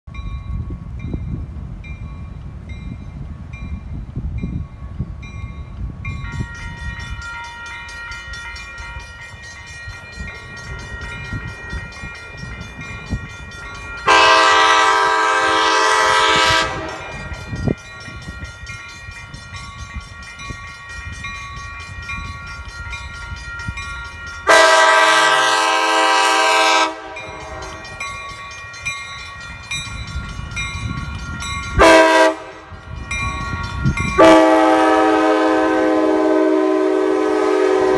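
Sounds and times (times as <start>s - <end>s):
bell ringing: 5.3s - 14.9s, 16.2s - 25.3s, 26.9s - 34.4s
train air horn blasts: 14.0s - 17.5s, 24.4s - 27.8s, 31.8s - 32.7s, 34.2s - 37.9s.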